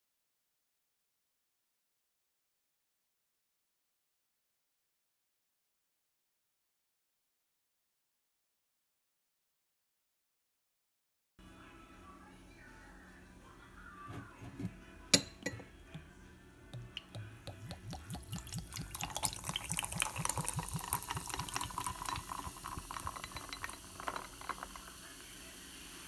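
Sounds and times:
glass clinks: 15.2 - 15.7, 18.3 - 24.9
drink glugging pour: 16.8 - 25.2
carbonated drink fizzing: 17.0 - 26.0.

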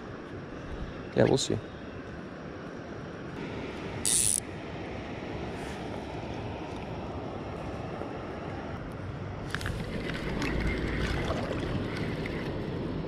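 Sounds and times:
stream water rushing: 2.9 - 13.0.

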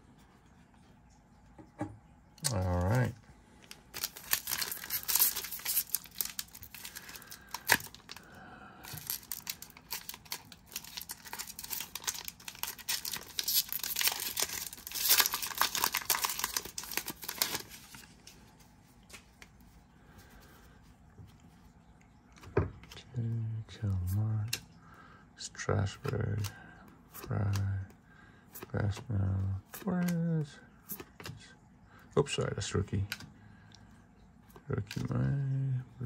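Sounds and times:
foil wrapper crinkling: 3.7 - 18.5.

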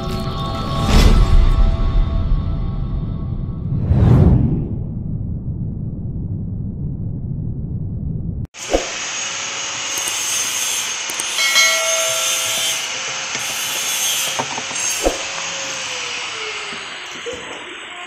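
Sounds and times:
low rumble: 2.2 - 8.5
hand rubbing on steel drum: 11.4 - 12.8.

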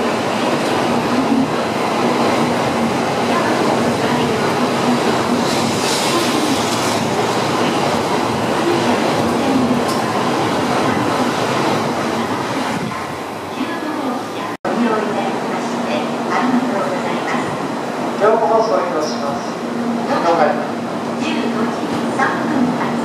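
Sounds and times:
train wheels on rail: 0.0 - 14.6.

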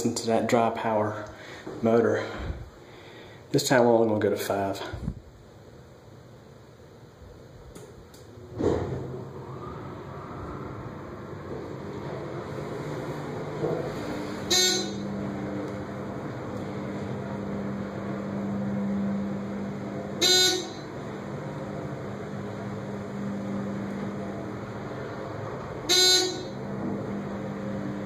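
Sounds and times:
elevator pump motor humming: 7.6 - 28.0.

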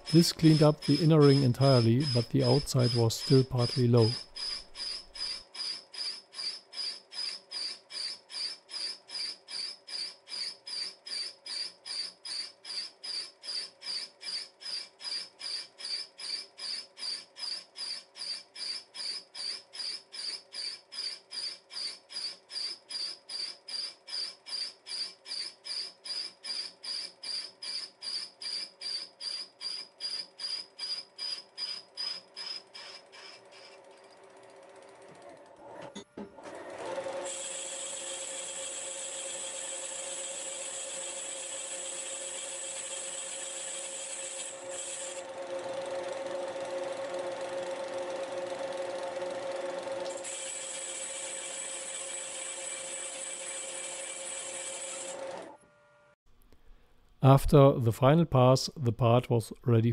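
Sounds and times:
cutting tool chirping: 0.0 - 34.2, 37.2 - 48.1, 49.4 - 55.6
milling machine running: 37.2 - 55.6.

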